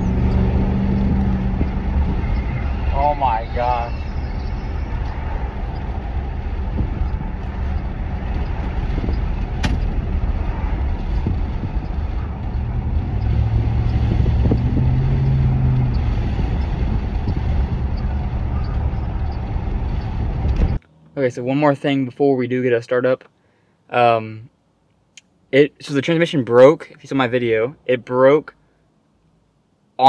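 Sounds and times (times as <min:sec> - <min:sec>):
truck engine droning: 0:00.0 - 0:20.8
road noise: 0:00.0 - 0:30.0.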